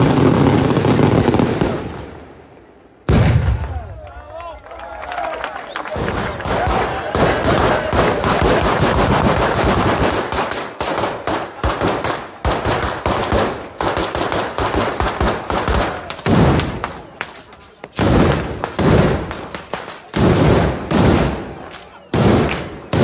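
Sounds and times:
firecrackers rattling bangs: 0.0s - 2.1s, 5.8s - 23.0s.

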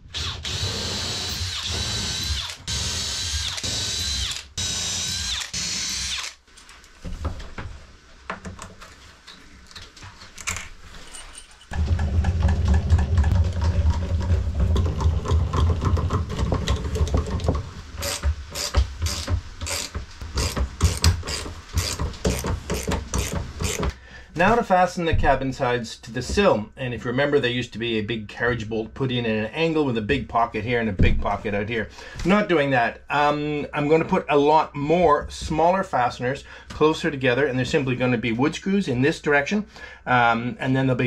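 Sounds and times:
cordless drill boring into wood: 0.0s - 6.4s, 18.0s - 23.9s
heavy tool driving bolts: 11.7s - 24.0s.

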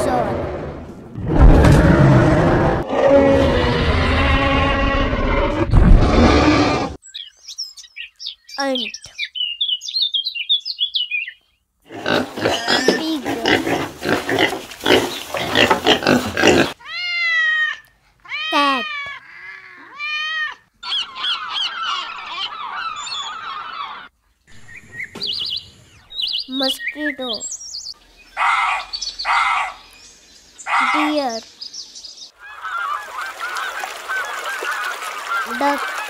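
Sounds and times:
cat meowing: 16.8s - 20.6s.

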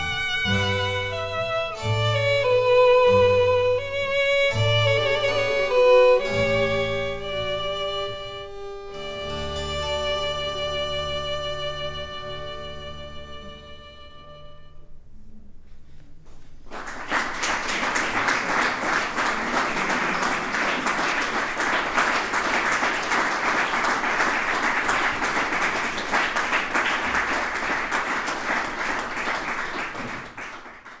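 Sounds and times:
held music notes: 0.0s - 16.0s
audience applause: 16.6s - 31.0s.

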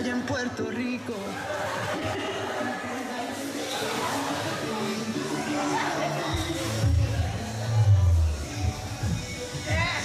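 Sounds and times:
latin pop music: 0.0s - 10.0s
heavy bass line: 6.3s - 10.0s.

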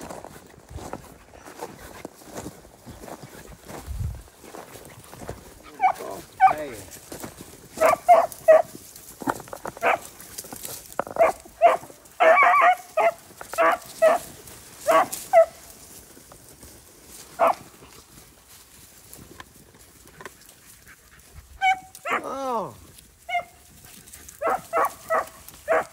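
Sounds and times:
dogs yelping barks: 5.6s - 6.8s, 7.7s - 10.4s, 11.0s - 15.7s, 17.3s - 17.7s, 20.6s - 22.4s, 23.2s - 25.9s.

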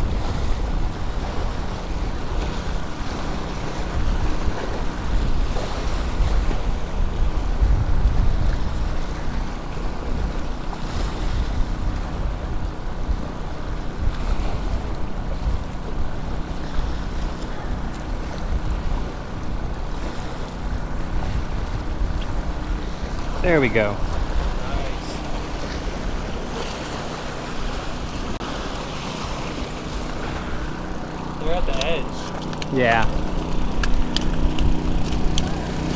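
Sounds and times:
wind rumbling on microphone: 0.0s - 35.9s.

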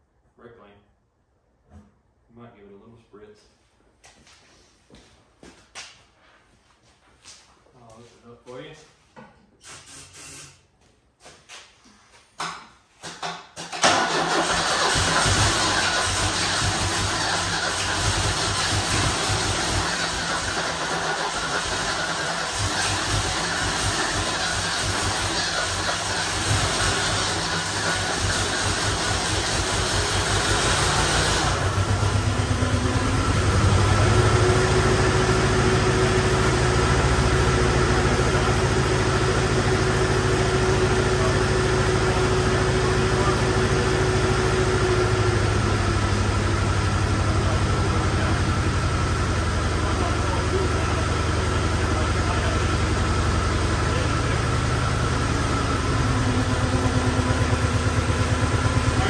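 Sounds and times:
car engine idling: 13.9s - 59.0s.

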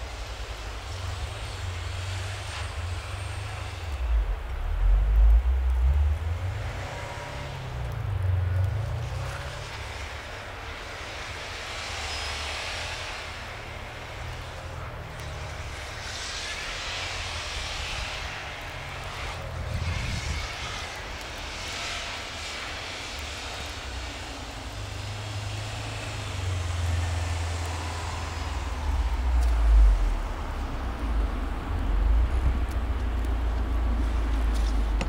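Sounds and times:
tyres spinning on snow: 0.0s - 35.0s
car engine revving: 0.9s - 35.0s
deep low rumble: 26.6s - 35.0s.

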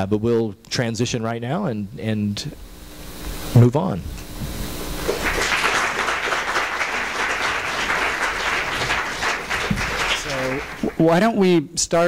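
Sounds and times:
audience applauding: 5.0s - 11.2s.

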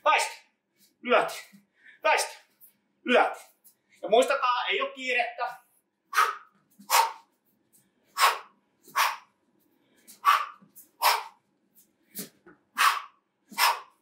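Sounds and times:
hissing exhalations through teeth: 10.2s - 11.4s.

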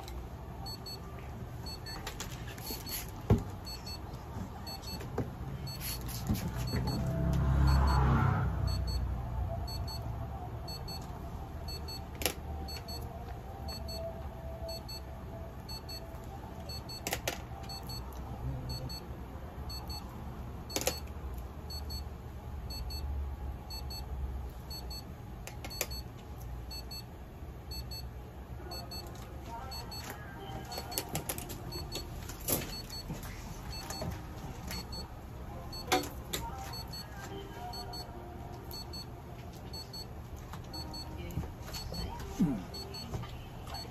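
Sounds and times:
faint high beeping: 6.6s - 12.1s, 12.7s - 18.1s, 27.7s - 28.1s, 28.7s - 31.0s, 34.7s - 35.1s, 36.7s - 38.1s, 38.7s - 39.1s.

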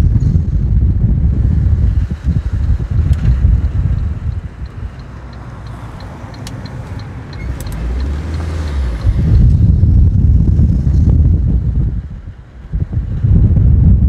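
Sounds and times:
car tyres and engine rumble: 0.0s - 14.0s
light ticking: 3.1s - 9.3s.

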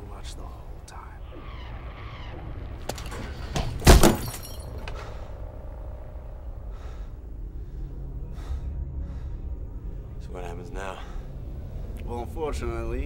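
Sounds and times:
glass smashing: 3.8s - 4.8s
high glass tinkling: 4.2s - 4.8s.

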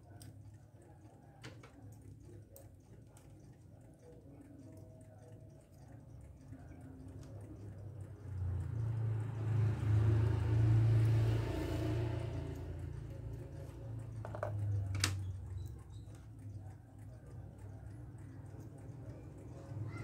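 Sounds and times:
vehicle engine rumble passing: 7.7s - 16.2s.

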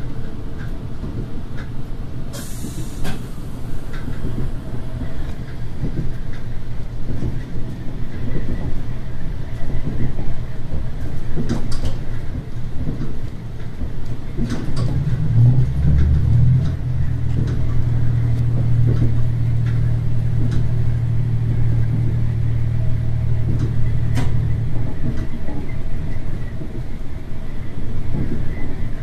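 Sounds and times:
wheels rumbling on track: 0.0s - 29.0s
diesel engine drone: 14.1s - 28.2s.

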